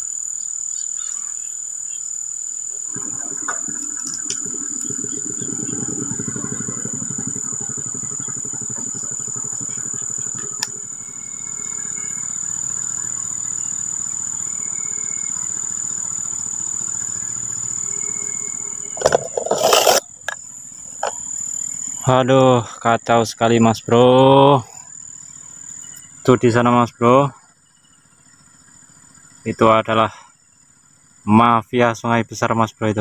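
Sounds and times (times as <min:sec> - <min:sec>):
distant small engine running: 0:00.0 - 0:22.8, 0:23.7 - 0:26.6
high insect drone: 0:00.0 - 0:33.0.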